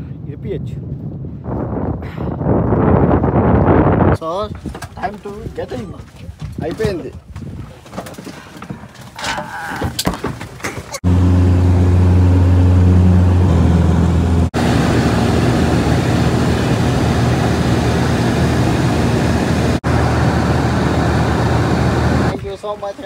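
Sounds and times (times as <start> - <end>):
propeller plane engine drone: 11.0 - 22.4.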